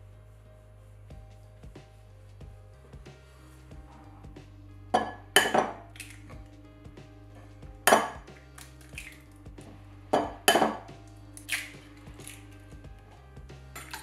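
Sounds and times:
soft background music: 0.0 - 14.0
eggshell clinking on glass bowl: 5.0 - 6.2, 10.2 - 10.9.

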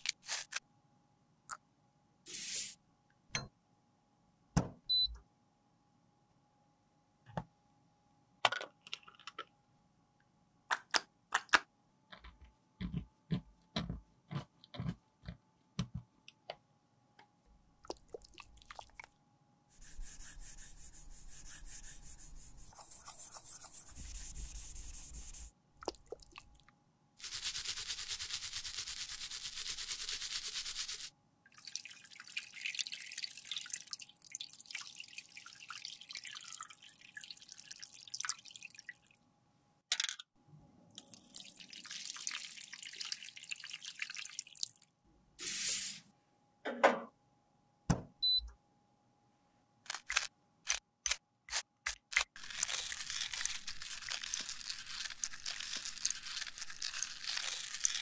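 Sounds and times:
brush scrubbing in soapy water: 19.8 - 25.5.

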